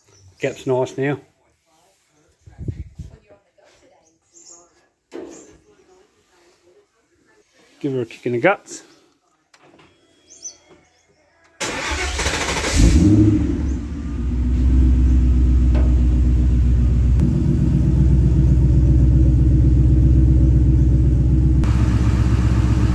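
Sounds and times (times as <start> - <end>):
car engine starting and idling: 11.6 - 22.9.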